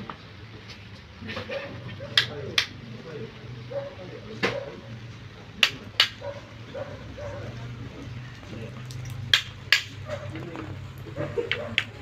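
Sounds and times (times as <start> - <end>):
sharp percussive knocks: 9.3 - 10.0.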